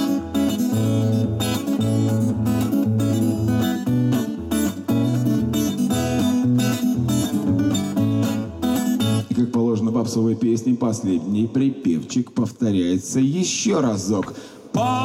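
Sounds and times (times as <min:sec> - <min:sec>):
acoustic guitar strumming: 0:00.0 - 0:09.4.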